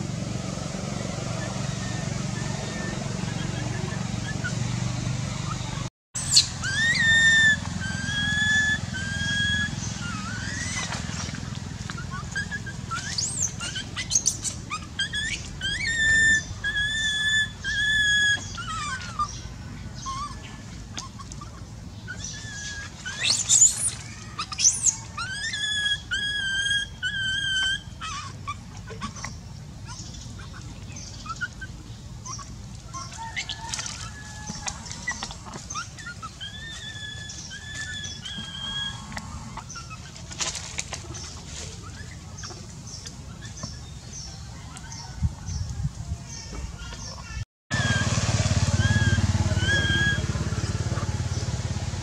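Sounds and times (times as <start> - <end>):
baby monkey crying: 5.5 - 11.0, 12.0 - 40.2, 46.3 - 51.2.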